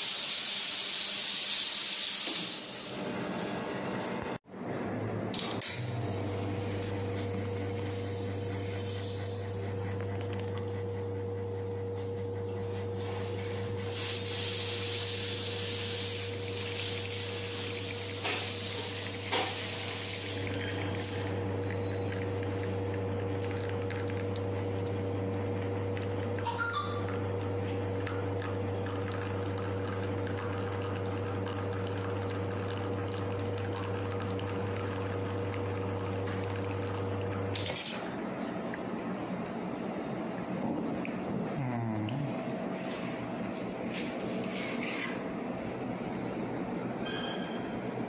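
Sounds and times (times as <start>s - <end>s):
espresso pump humming: 5.8s - 39.5s.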